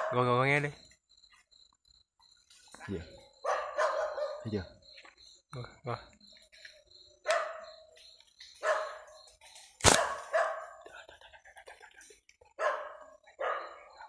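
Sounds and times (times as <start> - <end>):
dog barking: 0.0 - 0.2, 3.2 - 4.7, 7.2 - 8.0, 8.6 - 9.2, 9.9 - 10.9, 12.5 - 14.0.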